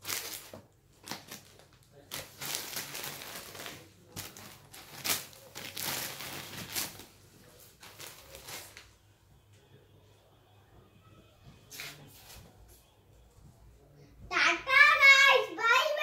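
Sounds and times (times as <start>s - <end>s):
plastic wrappers crinkling: 0.0s - 8.9s.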